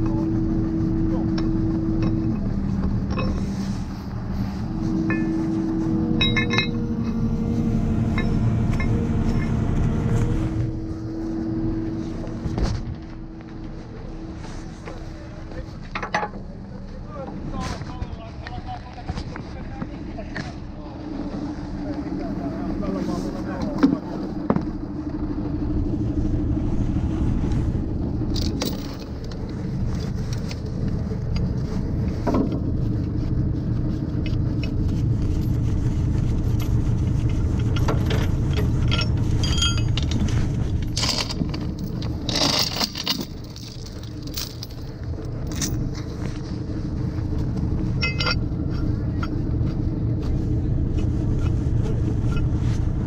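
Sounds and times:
truck diesel engines running: 0.0 - 53.0
metallic clinks and scrapes: 1.4 - 7.4, 8.0 - 9.7, 28.3 - 31.5, 34.3 - 46.5, 47.8 - 49.5.

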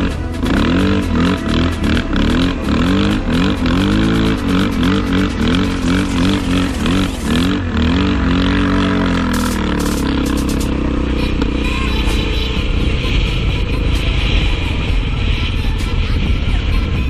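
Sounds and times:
atv engine revving: 0.0 - 16.7
wind noise on microphone: 11.4 - 17.0.

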